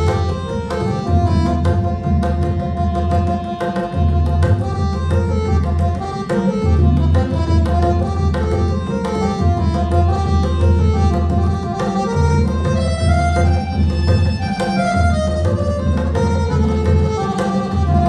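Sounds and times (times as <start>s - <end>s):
harmonium melody: 0.0s - 18.0s
tabla playing a rhythm: 0.0s - 18.0s.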